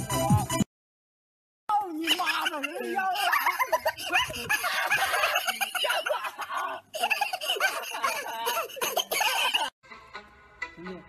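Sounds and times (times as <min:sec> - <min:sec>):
people speaking: 0:01.7 - 0:09.6
people laughing: 0:01.8 - 0:09.8.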